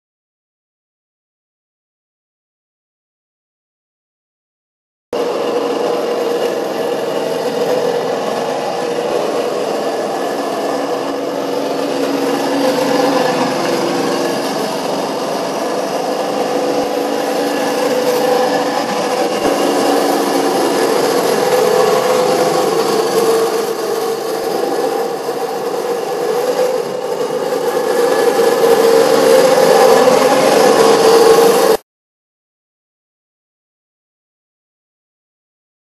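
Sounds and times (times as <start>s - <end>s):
electric toy car motor whine: 5.2s - 31.8s.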